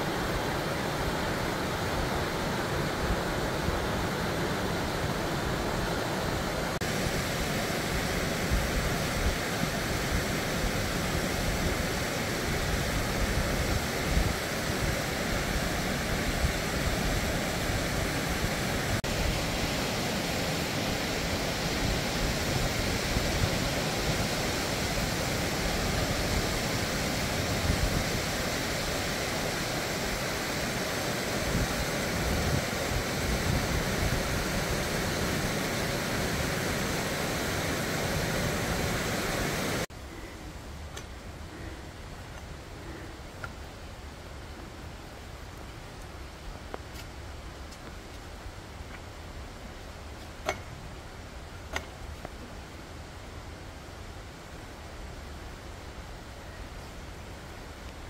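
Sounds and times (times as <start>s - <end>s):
stream rushing over rocks: 0.0s - 39.9s.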